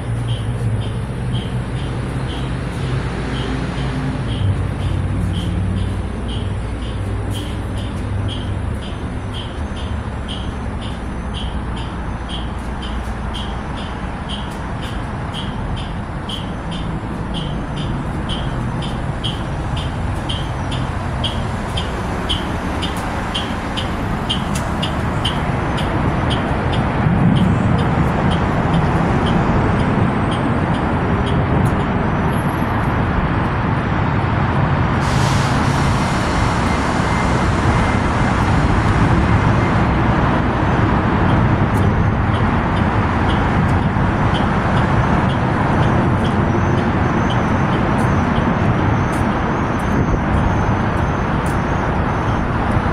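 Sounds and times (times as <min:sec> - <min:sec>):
electric bus humming: 0:00.0 - 0:52.9
traffic: 0:00.0 - 0:52.9
hiss of air: 0:35.0 - 0:38.6.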